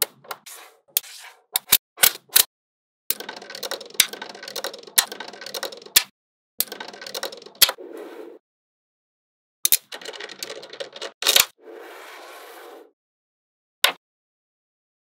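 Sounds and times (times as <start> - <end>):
balls rattling and scraping: 3.2 - 6.0, 6.6 - 8.4.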